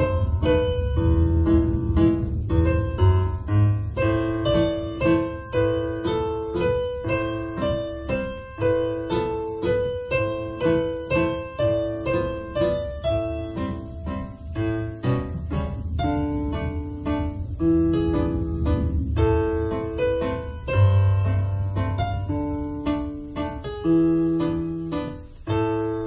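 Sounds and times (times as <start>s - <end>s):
digital piano waltz: 0.0s - 26.0s.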